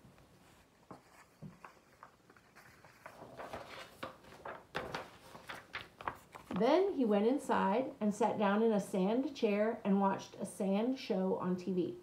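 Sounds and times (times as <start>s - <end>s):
book pages flipping: 0.2s - 6.7s.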